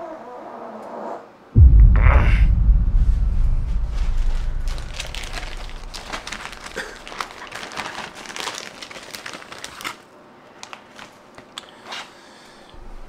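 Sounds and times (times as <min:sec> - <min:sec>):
plastic bag crinkling: 0:06.3 - 0:10.0.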